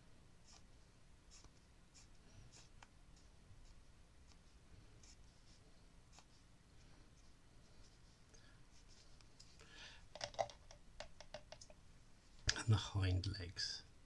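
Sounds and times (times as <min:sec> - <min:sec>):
twig pen scratching on paper: 0:00.4 - 0:00.7, 0:01.3 - 0:06.4.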